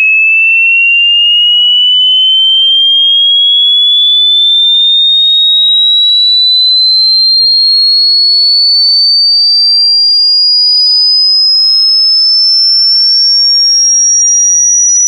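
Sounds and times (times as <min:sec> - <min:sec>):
rising electronic test tone: 0:00.0 - 0:15.0.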